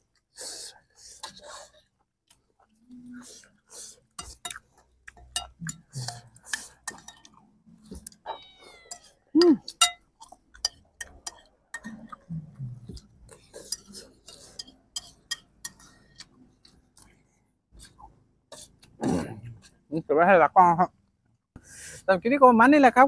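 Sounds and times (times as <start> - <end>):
man chewing: 0.0 - 19.8
metal spoon scraping on a plate: 8.9 - 10.0, 13.4 - 16.3.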